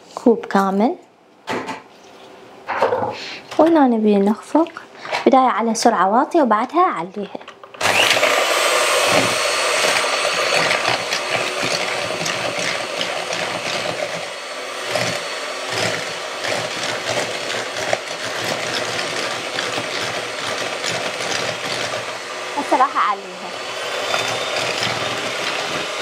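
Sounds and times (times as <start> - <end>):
electric hand mixer whisking: 7.8 - 26.0.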